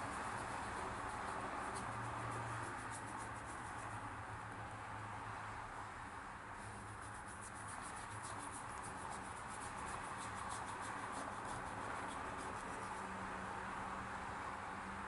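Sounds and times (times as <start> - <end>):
brush stroking across paper: 0.0 - 4.1, 6.6 - 13.1.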